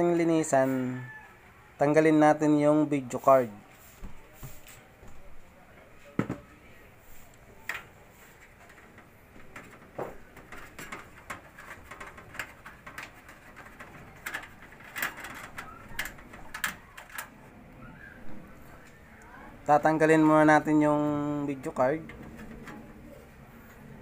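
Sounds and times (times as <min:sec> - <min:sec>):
clicks and taps inside pc case: 0:08.7 - 0:17.3.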